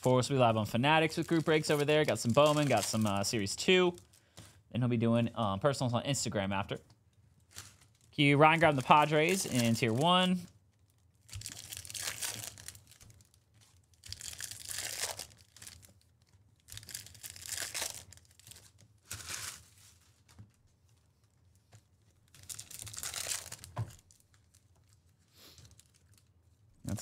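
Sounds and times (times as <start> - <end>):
foil wrappers tearing and crinkling: 1.0 - 4.2, 7.5 - 20.3, 22.3 - 26.3.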